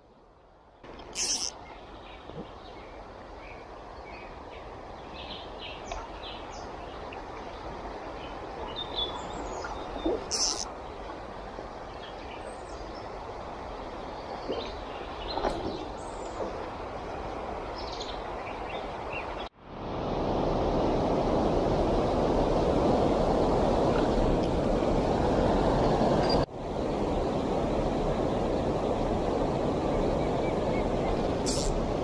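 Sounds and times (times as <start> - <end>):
river flowing: 0.2 - 32.0
bird chirps: 8.8 - 10.6.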